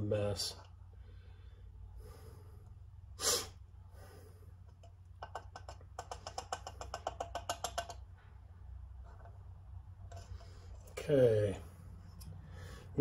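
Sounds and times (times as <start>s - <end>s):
short sharp breath: 1.0s - 4.6s
oil pouring with plinks and gurgles: 4.6s - 8.2s, 10.0s - 11.1s.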